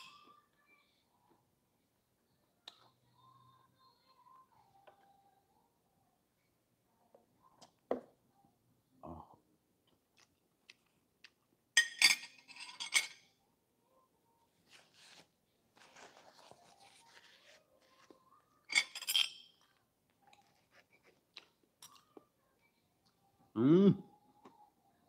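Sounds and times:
cutlery clinking on a plate: 11.8 - 13.3, 18.7 - 19.6.

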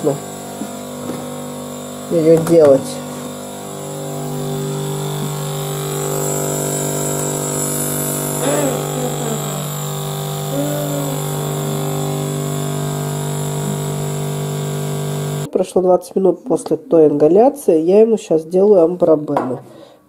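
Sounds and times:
nebulizer compressor humming: 0.0 - 15.5.

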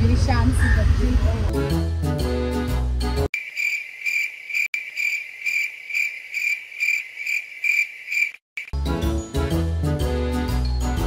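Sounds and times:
music: 0.0 - 3.3, 8.8 - 11.0
cricket chirping: 3.3 - 8.7.

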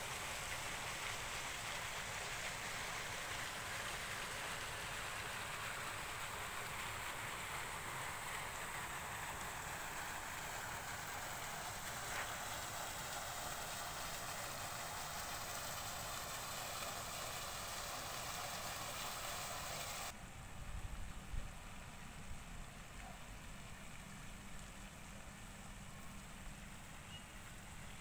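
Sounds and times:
outdoor ambient hiss: 0.0 - 28.0.

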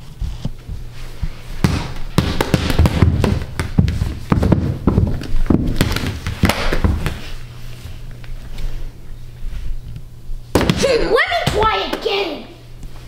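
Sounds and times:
low steady hum: 0.0 - 13.0
ball bouncing on wooden floor: 1.6 - 7.2.

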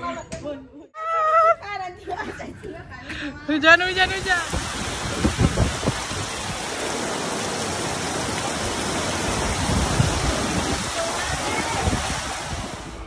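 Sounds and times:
heavy rain on ground: 4.0 - 13.0.

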